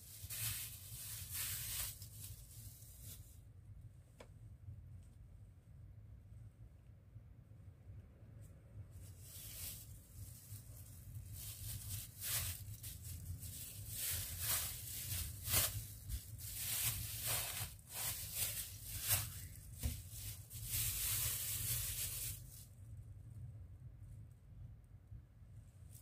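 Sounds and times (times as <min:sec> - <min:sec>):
plastic bag crinkling: 0:00.0 - 0:03.4, 0:09.2 - 0:22.7.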